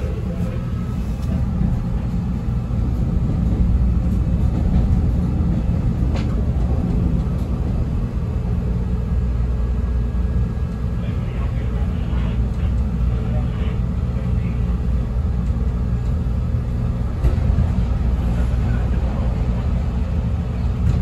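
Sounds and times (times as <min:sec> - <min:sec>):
wheels rumbling on rails: 0:00.0 - 0:21.0.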